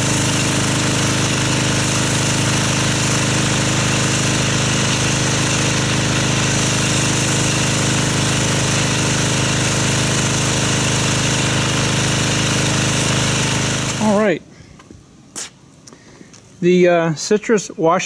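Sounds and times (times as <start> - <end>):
water jet hissing: 0.0 - 14.3
pressure washer drone: 0.0 - 14.4.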